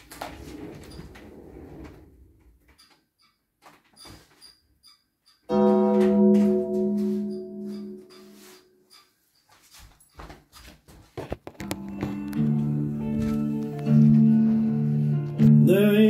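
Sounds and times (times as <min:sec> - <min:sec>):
sustained keyboard chord: 0:05.5 - 0:08.8, 0:11.8 - 0:16.0.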